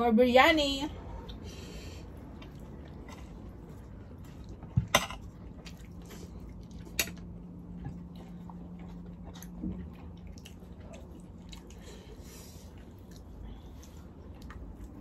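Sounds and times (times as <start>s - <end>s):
soft chewing: 1.0s - 15.0s.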